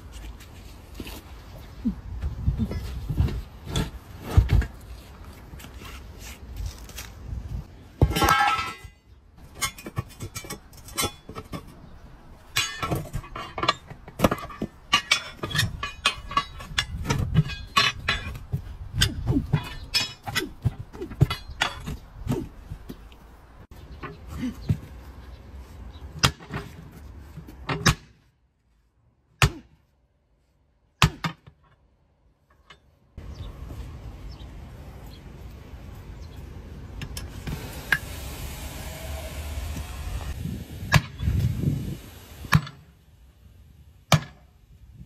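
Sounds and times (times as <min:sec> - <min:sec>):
compressed air hissing: 0:37.5 - 0:42.5.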